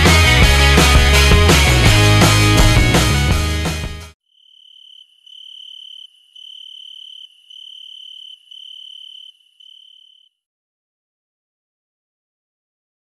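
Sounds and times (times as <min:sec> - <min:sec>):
cricket chirping: 0:04.2 - 0:10.4.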